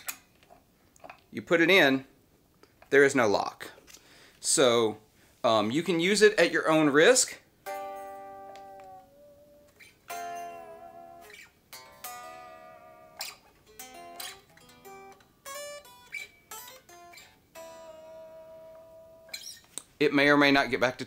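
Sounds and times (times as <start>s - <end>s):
clean electric guitar: 7.6s - 19.9s.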